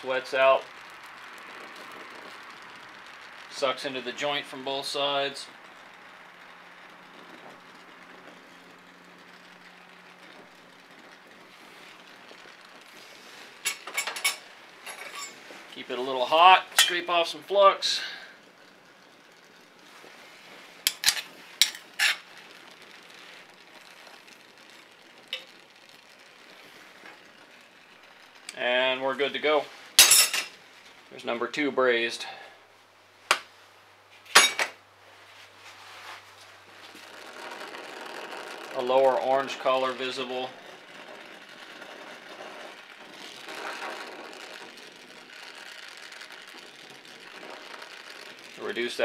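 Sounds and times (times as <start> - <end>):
gas torch hissing: 0.0 - 34.4, 35.5 - 49.0
tool scraping metal: 13.0 - 15.6, 20.8 - 22.5, 37.1 - 48.6.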